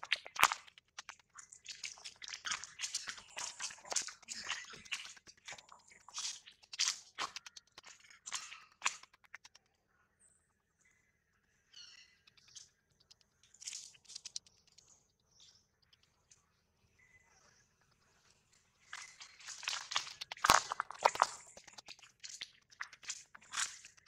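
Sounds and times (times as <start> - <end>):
macaques crunching and clicking: 0.0 - 9.6, 12.4 - 14.9, 18.8 - 24.0.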